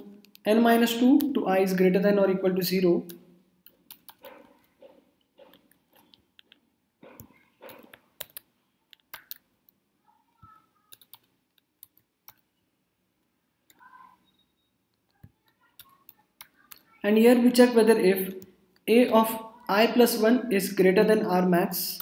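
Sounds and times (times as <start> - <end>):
keyboard typing: 3.0 - 9.8, 10.4 - 12.6, 13.6 - 18.9.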